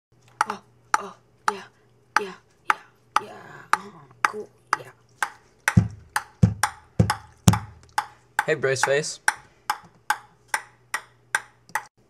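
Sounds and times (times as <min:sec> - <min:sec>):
utensil tapping on plate: 0:05.2 - 0:11.9.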